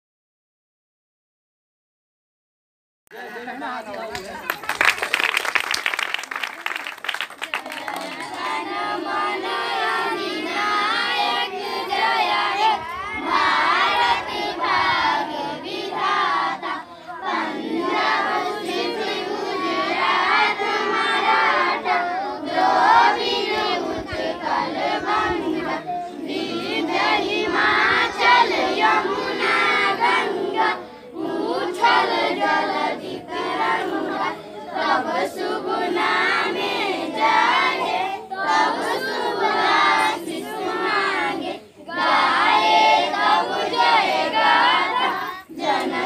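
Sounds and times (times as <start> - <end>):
children singing in unison: 7.9 - 46.0.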